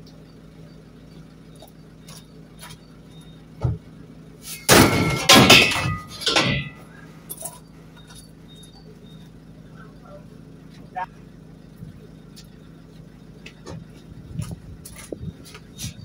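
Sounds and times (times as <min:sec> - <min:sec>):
metal scraping and clanking: 0:04.4 - 0:07.7.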